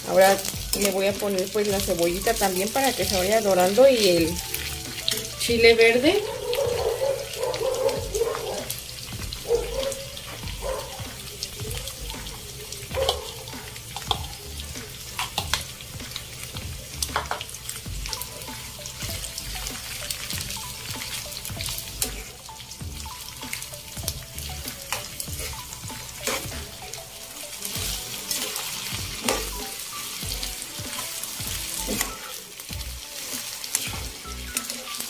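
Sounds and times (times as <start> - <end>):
background music: 0.0 - 35.0
sausages sizzling in a frying pan: 0.0 - 35.0
metal spoon clicking on pan: 14.0 - 14.3, 15.2 - 15.7.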